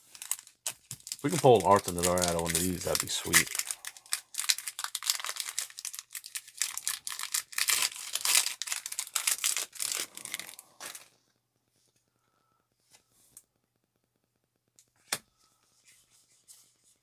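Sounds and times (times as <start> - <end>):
foil wrapper crinkling and tearing: 0.0 - 11.1.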